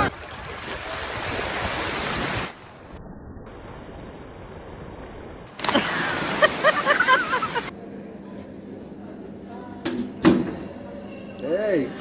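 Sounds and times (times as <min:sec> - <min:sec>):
wind: 0:00.0 - 0:12.0.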